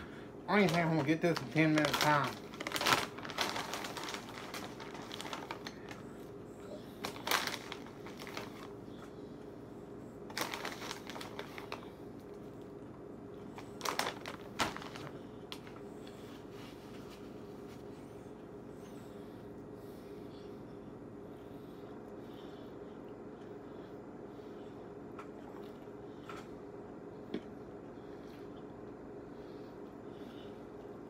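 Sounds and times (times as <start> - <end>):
steady low hum: 0.0 - 31.0
plastic bag crinkling: 0.5 - 6.0, 6.9 - 8.8, 10.3 - 11.9, 13.6 - 15.8.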